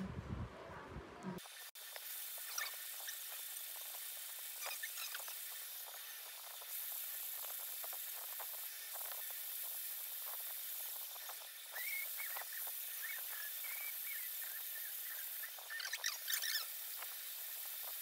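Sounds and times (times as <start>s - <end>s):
tattoo machine hissing: 1.4s - 18.0s
squeaky chirps: 2.4s - 3.2s, 4.6s - 5.3s, 11.7s - 16.8s.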